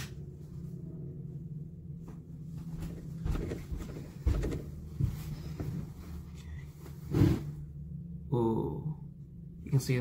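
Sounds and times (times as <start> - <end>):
steady low hum: 0.0 - 10.0
soft footsteps: 1.8 - 7.4.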